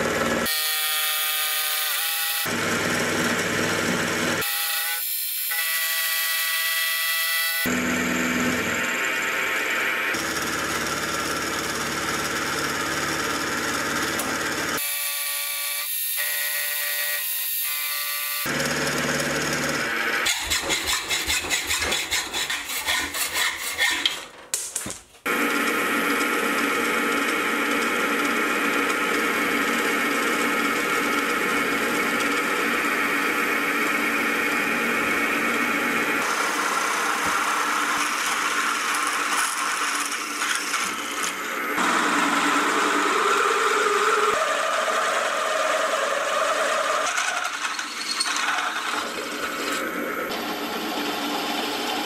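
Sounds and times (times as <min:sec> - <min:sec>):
milling machine cutting metal: 0:25.3 - 0:52.0.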